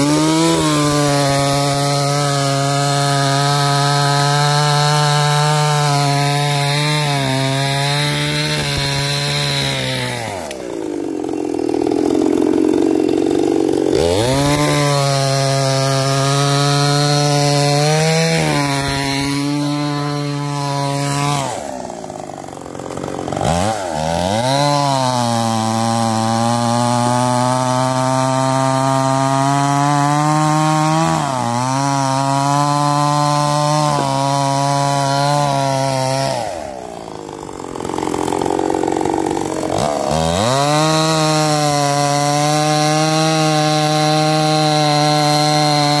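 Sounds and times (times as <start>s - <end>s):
chainsaw cutting logs: 0.0s - 46.0s.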